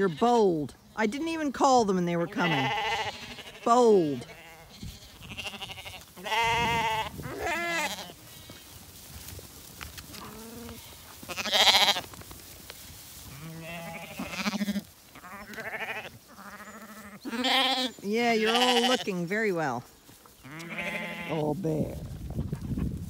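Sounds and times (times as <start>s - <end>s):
lambs bleating: 2.1s - 8.6s, 10.1s - 12.1s, 13.3s - 19.3s, 20.4s - 21.6s.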